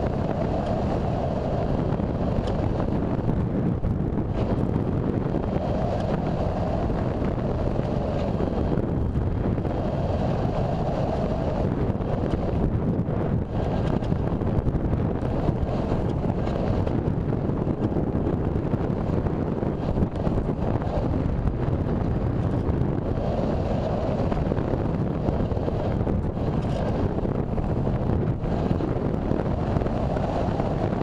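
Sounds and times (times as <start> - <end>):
wind rushing over microphone: 0.0 - 31.0.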